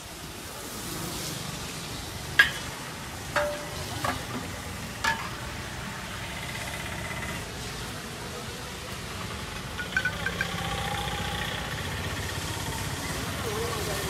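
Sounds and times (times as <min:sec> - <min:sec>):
glasses and spoons clinking: 0:03.4 - 0:04.2, 0:09.8 - 0:10.6.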